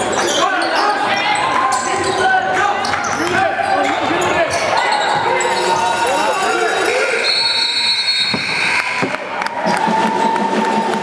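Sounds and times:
spectator chatter: 0.0s - 11.0s
steady whistle-like tone: 7.0s - 9.0s.

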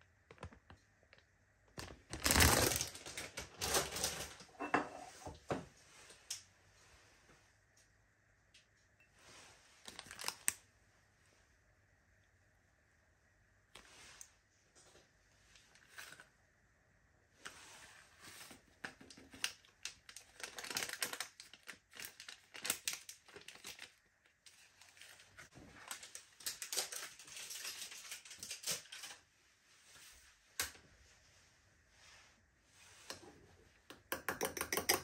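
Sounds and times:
plastic packet crinkling: 1.8s - 4.4s, 9.8s - 10.6s, 19.0s - 29.2s.

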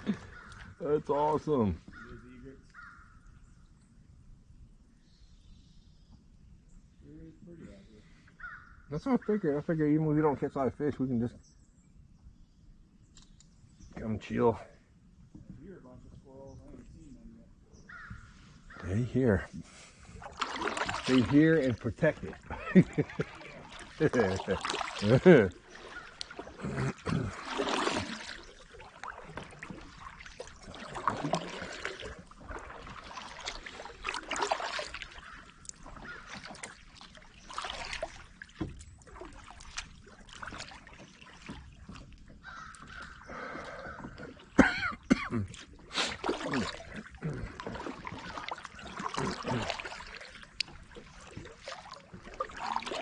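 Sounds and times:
paddle swishing through water: 0.0s - 3.2s, 17.9s - 53.0s
water trickling off paddle: 19.7s - 53.0s.

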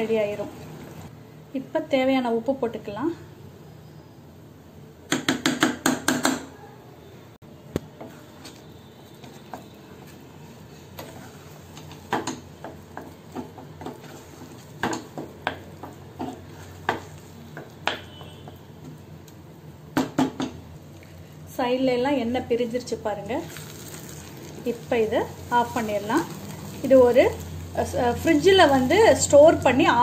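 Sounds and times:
wooden spatula stirring in pan: 7.9s - 19.2s.

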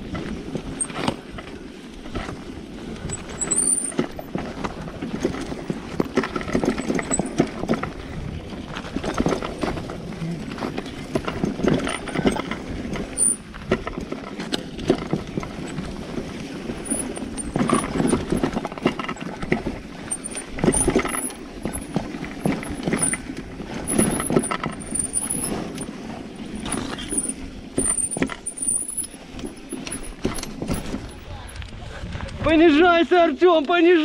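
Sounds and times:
bike frame knocks and rattles: 0.0s - 31.5s
bike tyre rumble on dirt: 0.0s - 34.0s.

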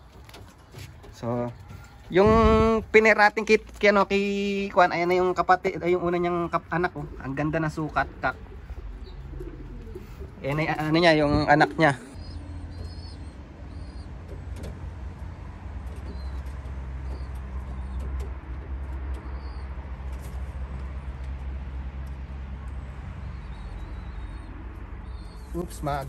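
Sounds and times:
small birds chirping: 0.0s - 26.0s
steady low rumble: 2.1s - 12.5s
pigeons cooing: 4.6s - 20.0s, 22.4s - 26.0s.

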